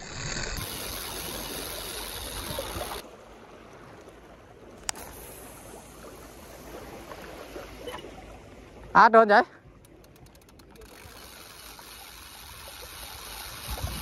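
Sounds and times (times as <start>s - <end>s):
sea water washing against wall: 0.0s - 3.0s, 9.8s - 14.0s.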